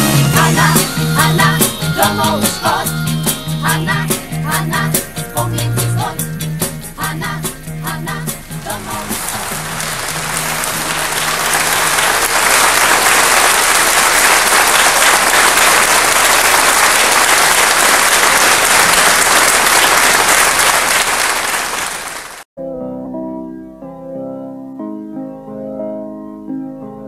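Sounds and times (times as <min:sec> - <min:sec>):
keyboard notes: 0:00.0 - 0:13.4, 0:22.6 - 0:27.0
audience applauding: 0:08.6 - 0:22.5.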